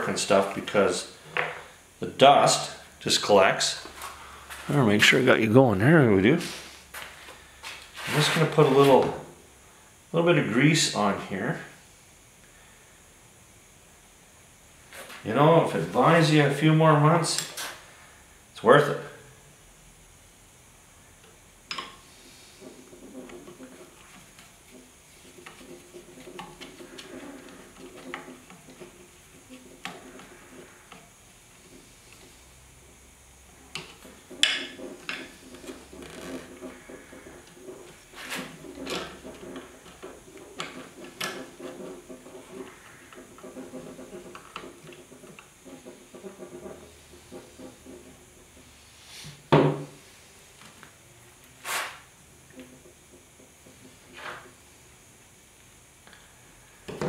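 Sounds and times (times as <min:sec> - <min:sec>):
brief rustling hiss: 0:51.6 - 0:52.0.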